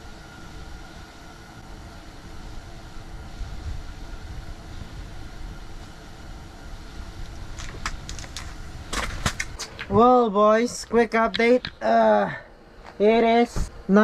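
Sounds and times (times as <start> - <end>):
low rumbling background noise: 0.0 - 14.0.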